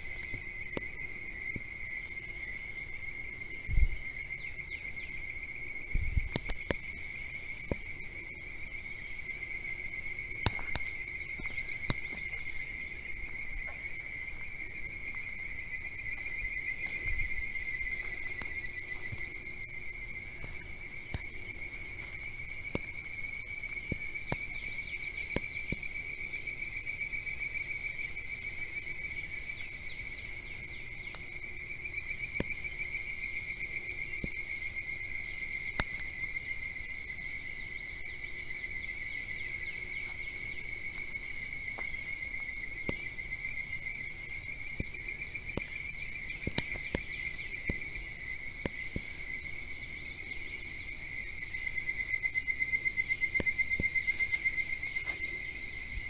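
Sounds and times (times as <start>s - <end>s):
insect chorus trilling: 0.0s - 56.0s.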